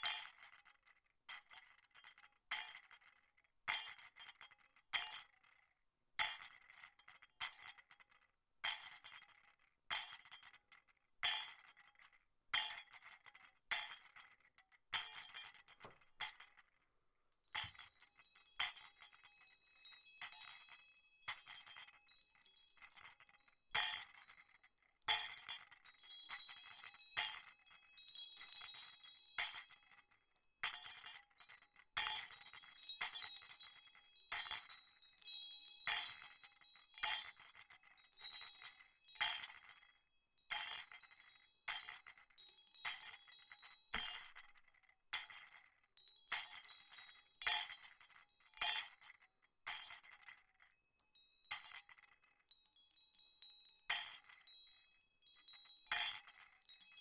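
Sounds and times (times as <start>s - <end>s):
jingle bells shaking: 17.3s - 23.7s, 25.7s - 30.9s, 32.3s - 39.8s, 40.8s - 44.1s, 46.0s - 48.4s, 51.0s - 57.0s.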